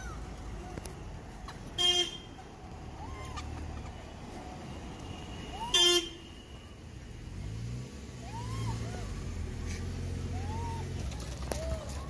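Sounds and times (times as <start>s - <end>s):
vehicle horn honk: 1.8s - 2.3s, 5.0s - 6.5s
vehicle engine passing: 6.9s - 12.0s.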